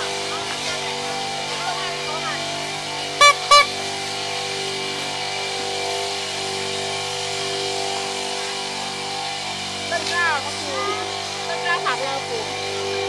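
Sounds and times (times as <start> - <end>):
engine running steadily: 0.0 - 13.0
loud horn beep: 3.2 - 3.8.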